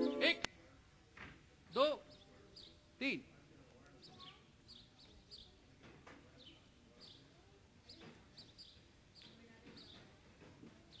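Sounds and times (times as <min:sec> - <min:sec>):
bird chirping: 0:06.3 - 0:10.1.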